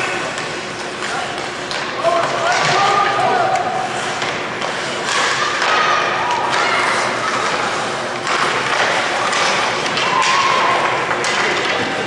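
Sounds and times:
skate blades scraping ice: 3.8s - 11.7s
sticks striking puck: 4.2s - 12.0s
people shouting: 10.0s - 11.0s.

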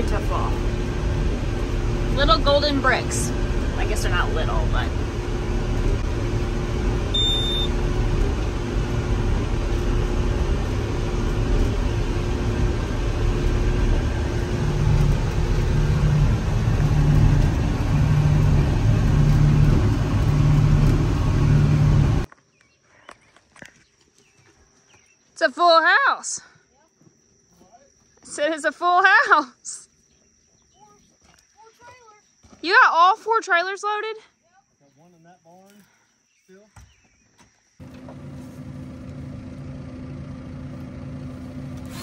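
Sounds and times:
diesel engine running: 0.0s - 22.3s, 37.8s - 42.0s
low pulsing hum: 0.0s - 22.3s
short high beep: 7.1s - 7.8s.

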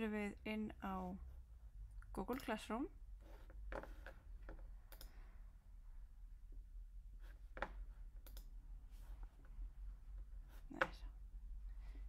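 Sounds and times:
low steady hum: 0.0s - 12.0s
computer mouse clicks: 3.7s - 5.2s, 7.6s - 8.5s.

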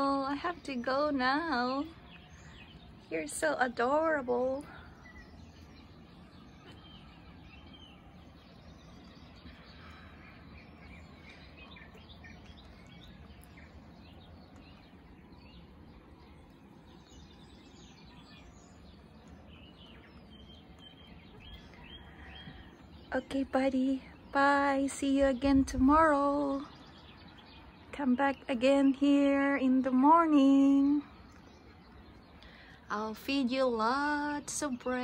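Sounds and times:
bird chirps: 0.0s - 35.0s
low background rumble: 0.0s - 35.0s.

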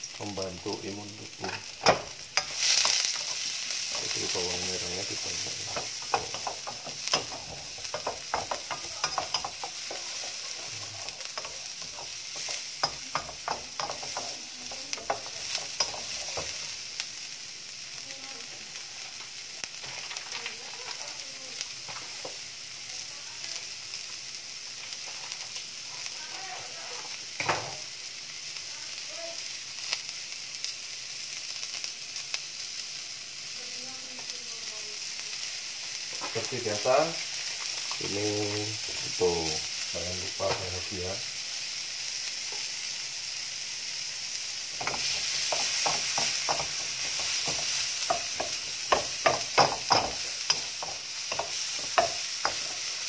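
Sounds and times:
shallots and garlic sizzling in oil: 0.0s - 53.0s
wooden spatula scraping a wok: 1.4s - 16.8s, 19.8s - 21.2s, 24.8s - 25.6s, 44.8s - 53.0s.

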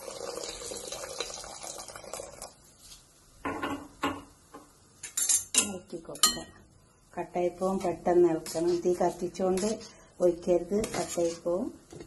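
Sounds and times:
liquid pouring and splashing: 0.0s - 2.6s
utensils clinking against pot: 5.0s - 6.6s.

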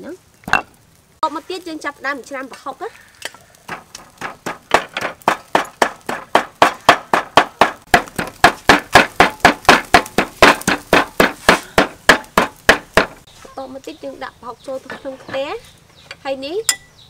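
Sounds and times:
cleaver chopping on wooden block: 3.7s - 13.2s.

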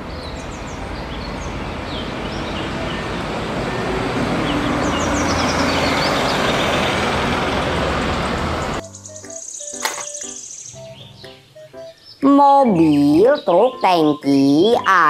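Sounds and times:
bus driving past: 0.0s - 9.0s
birds chirping: 0.0s - 15.0s.

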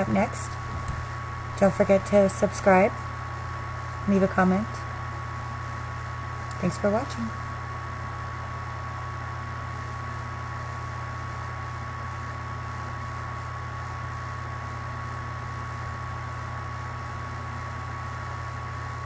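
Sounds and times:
machine hum: 0.0s - 19.0s.

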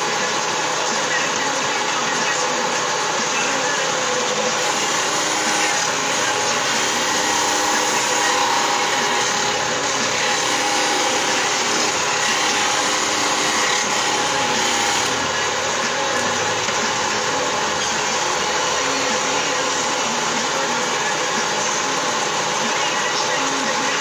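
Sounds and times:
stone saw grinding: 4.4s - 23.2s.

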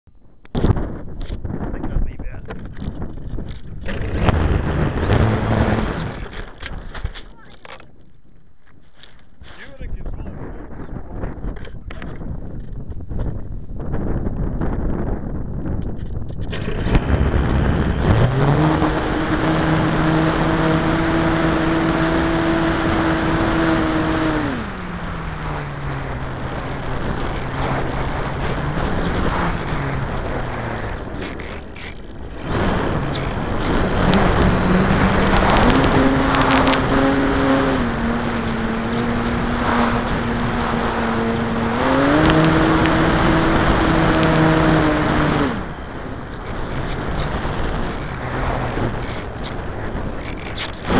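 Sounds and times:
wind on microphone: 0.1s - 50.9s
model aircraft motor and propeller: 2.5s - 7.9s, 15.8s - 50.9s.

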